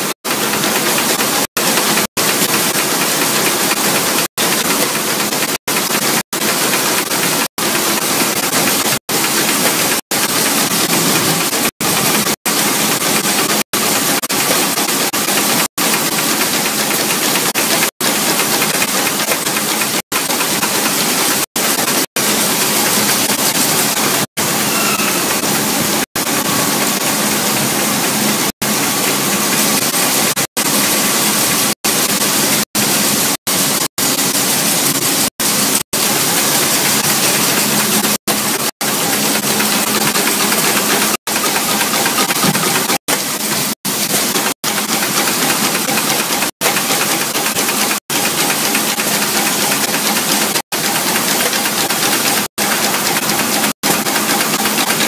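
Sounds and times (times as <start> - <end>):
brush tufting machine running: 0.0 - 55.0.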